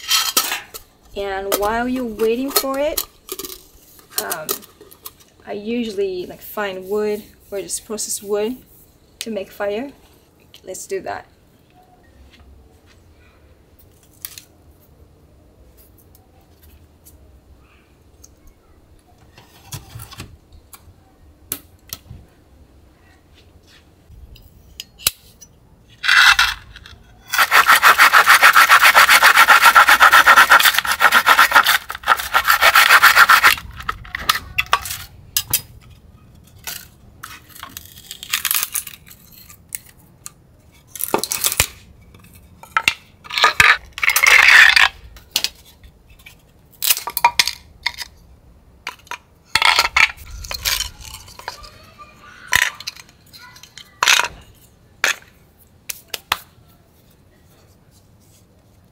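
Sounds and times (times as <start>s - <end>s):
saw cutting wooden board: 27.3s - 33.7s
wood scraping and cracking: 27.3s - 35.1s.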